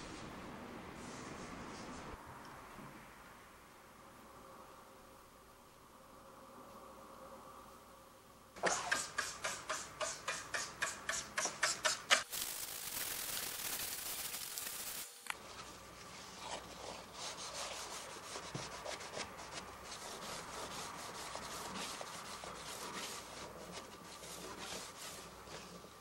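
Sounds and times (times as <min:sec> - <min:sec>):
steady hiss: 0:08.9 - 0:26.0
paper towel rubbing metal rails: 0:16.4 - 0:26.0.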